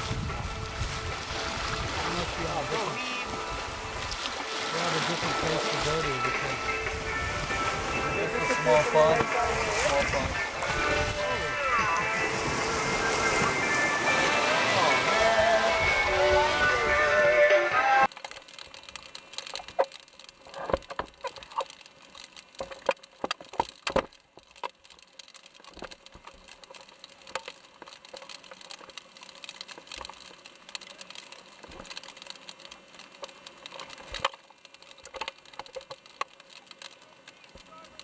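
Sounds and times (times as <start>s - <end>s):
sharp clicks and knocks: 18.1s - 38.0s.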